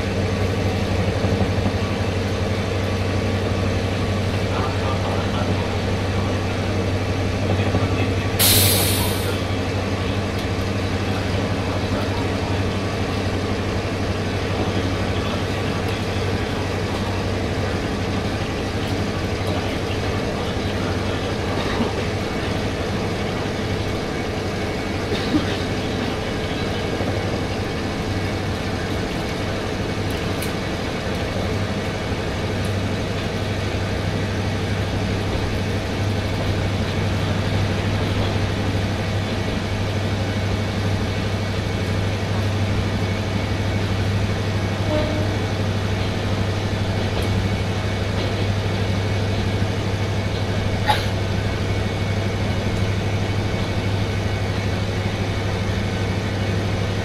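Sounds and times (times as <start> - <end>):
diesel railcar engine drone: 0.0 - 57.0
short sharp air hiss: 8.4 - 9.4.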